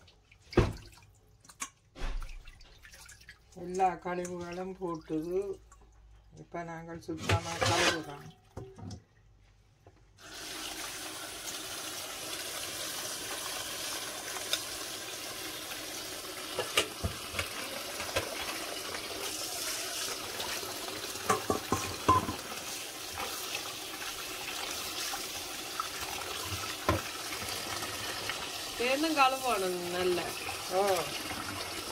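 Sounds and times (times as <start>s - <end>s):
tap water running into steel bowl: 10.2s - 31.9s.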